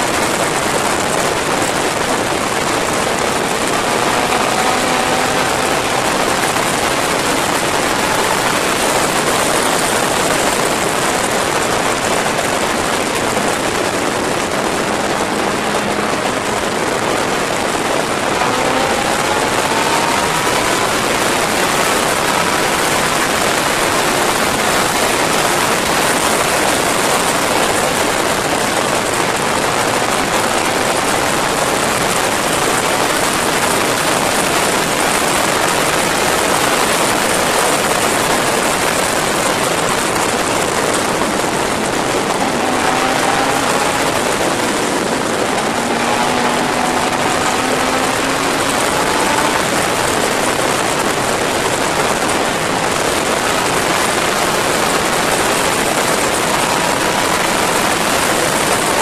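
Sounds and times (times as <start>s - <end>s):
motorcycle engine: 0.0s - 59.0s
wind rush: 0.0s - 59.0s.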